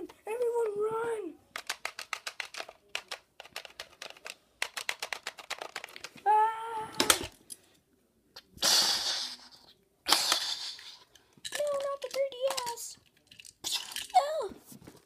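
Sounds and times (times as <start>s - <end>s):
plastic toys clattering: 1.5s - 6.2s, 10.3s - 15.0s.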